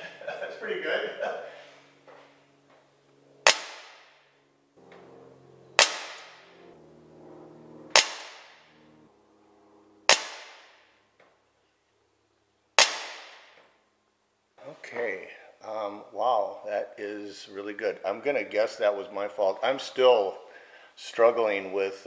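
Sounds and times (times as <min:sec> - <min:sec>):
pellet revolver shots: 0:03.4 - 0:04.2, 0:05.8 - 0:06.5, 0:07.9 - 0:08.7, 0:10.1 - 0:10.9, 0:12.8 - 0:13.6.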